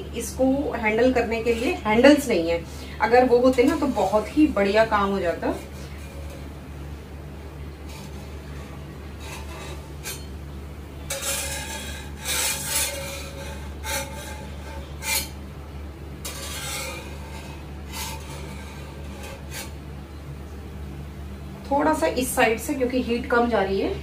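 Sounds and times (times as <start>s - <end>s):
metal spatula scraping iron pan: 3.1s - 6.6s, 7.8s - 15.4s, 16.2s - 19.8s.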